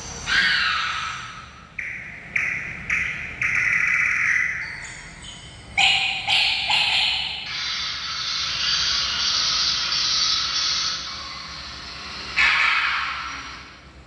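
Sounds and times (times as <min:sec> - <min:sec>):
loud animal call: 0:00.2 - 0:02.8, 0:05.8 - 0:13.9.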